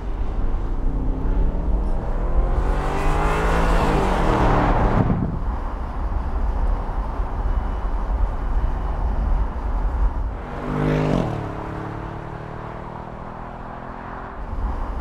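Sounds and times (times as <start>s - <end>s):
road and wind rumble: 0.0s - 15.0s
car engine sweeping past: 0.4s - 5.4s, 10.3s - 14.5s.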